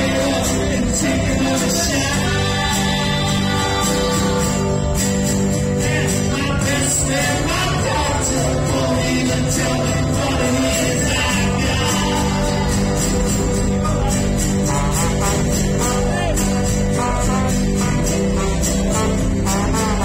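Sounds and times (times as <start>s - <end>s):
acoustic guitars strumming: 0.0s - 20.0s
trombone: 5.8s - 20.0s.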